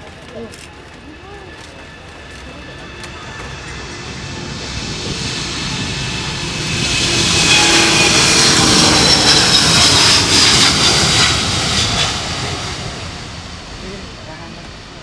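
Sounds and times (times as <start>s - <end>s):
jet engines roaring with whine: 0.0s - 15.0s.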